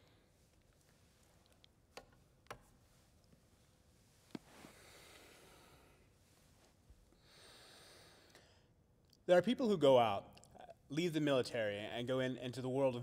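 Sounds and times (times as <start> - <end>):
soft breath: 4.3 - 8.8.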